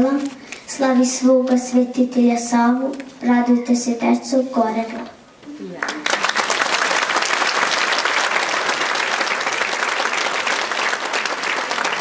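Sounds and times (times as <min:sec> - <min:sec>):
audience clapping: 0:05.8 - 0:12.0.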